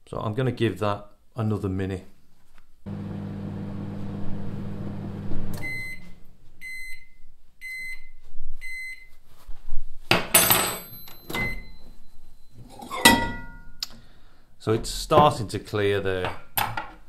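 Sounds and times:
microwave oven humming: 2.9 - 6.3
microwave beeps: 4.6 - 9.1, 10.9 - 12.6.

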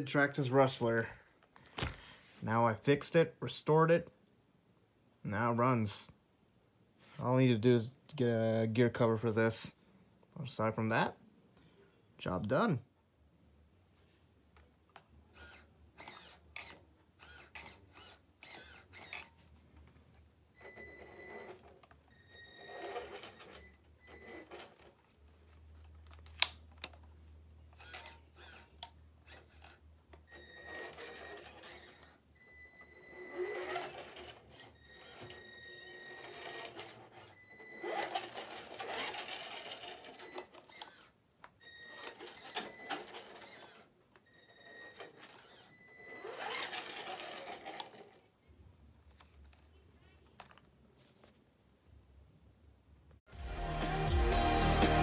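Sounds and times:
electric motor and gears whining: 15.3 - 19.3, 27.7 - 29.8, 30.4 - 32.2, 33.1 - 41.2, 41.8 - 43.9, 44.6 - 48.0.

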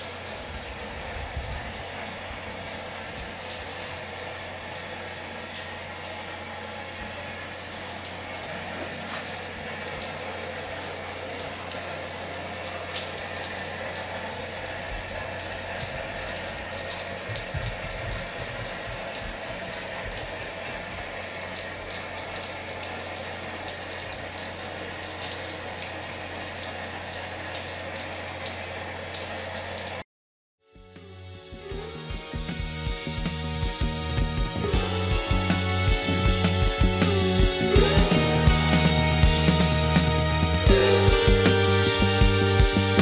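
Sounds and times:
low even hum: 0.0 - 30.0, 30.8 - 43.0
dull low thumps: 17.2 - 20.4.

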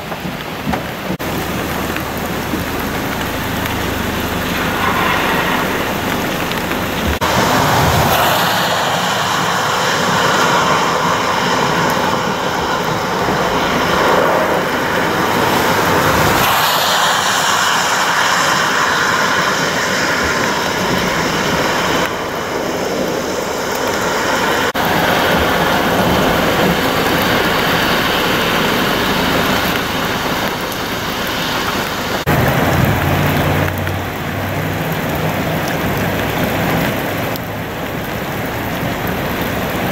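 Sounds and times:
car tyres hissing through water: 0.0 - 39.9
steady rain: 0.0 - 39.9
truck engine humming: 1.0 - 12.0.

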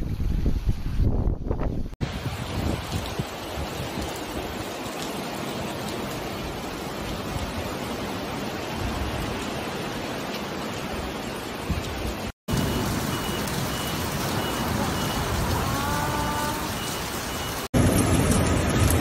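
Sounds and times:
heavy rain on pavement: 2.0 - 19.0.

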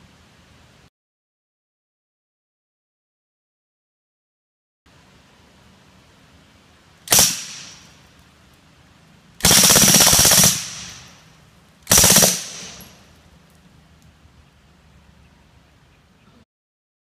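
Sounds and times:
suppressed gun firing bursts: 7.1 - 7.9, 9.4 - 11.3, 11.9 - 13.0.

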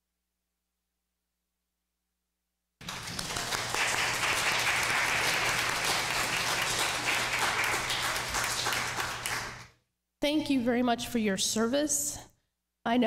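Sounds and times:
crowd applauding: 2.8 - 9.7.

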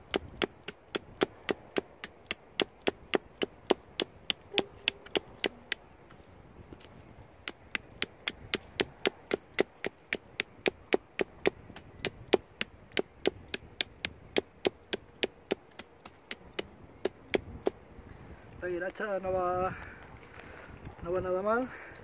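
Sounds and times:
hatchet chopping wood: 0.0 - 5.8, 6.8 - 17.8.

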